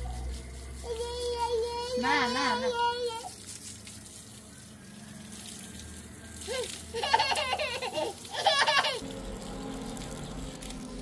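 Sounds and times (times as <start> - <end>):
child laughing: 6.4 - 9.0.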